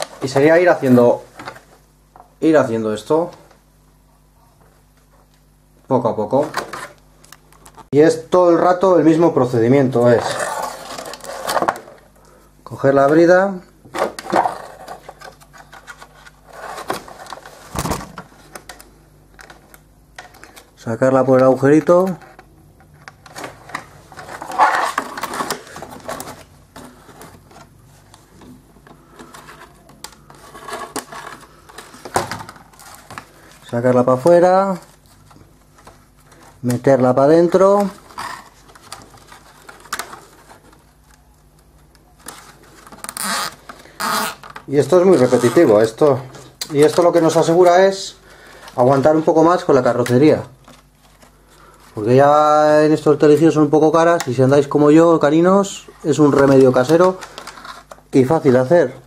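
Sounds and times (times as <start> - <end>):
plastic scrape: 10.0 - 12.0, 14.0 - 18.7, 23.2 - 33.6, 37.8 - 41.0
plastic zip ties clicking and rustling: 42.8 - 44.6.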